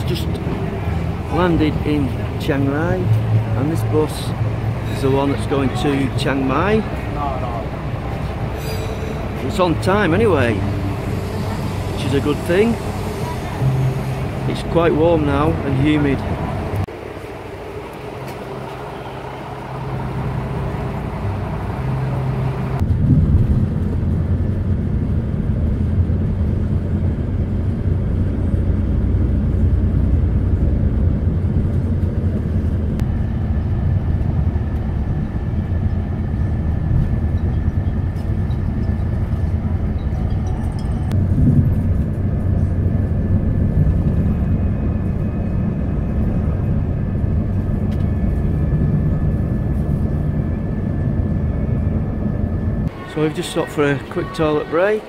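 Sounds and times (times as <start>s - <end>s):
bus station background noise: 0.0s - 55.0s
coach engine and road noise: 0.0s - 55.0s.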